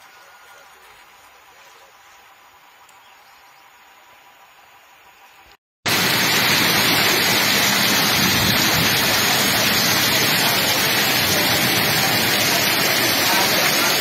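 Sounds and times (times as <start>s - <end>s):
heavy rain and rushing water: 5.9s - 14.0s.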